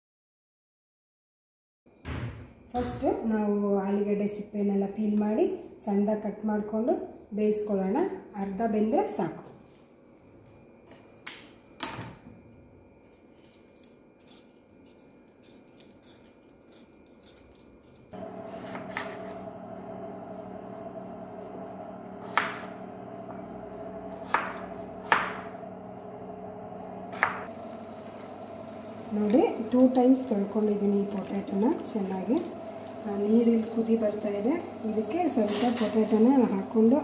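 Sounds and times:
steady hum: 0:18.2 - 0:37.0
knife chopping on wooden board: 0:18.5 - 0:19.4, 0:22.2 - 0:23.4, 0:24.1 - 0:25.6, 0:27.1 - 0:27.5.

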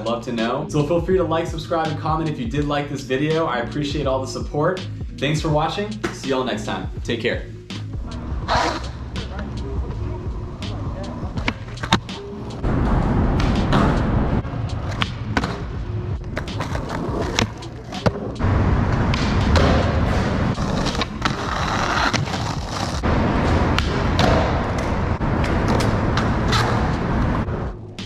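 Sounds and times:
skateboard wheels rolling on concrete: 0:08.1 - 0:28.0.

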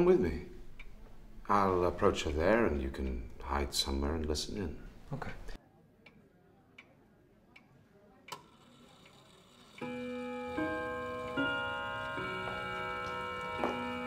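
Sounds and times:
music with held chords: 0:09.8 - 0:14.0.

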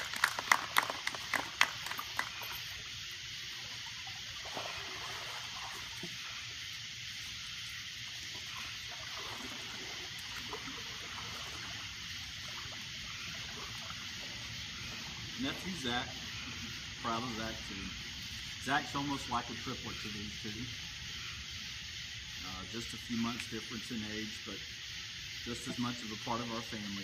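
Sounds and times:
sharp claps: 0:00.0 - 0:02.6
pool water trickling and lapping: 0:00.0 - 0:27.0.

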